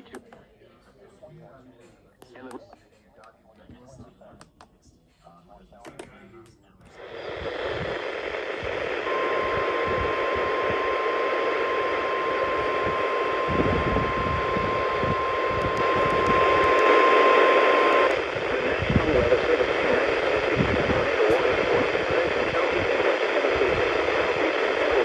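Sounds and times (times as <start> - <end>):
radio static hiss: 6.8 - 25.0
steady alarm tone: 9.0 - 18.1.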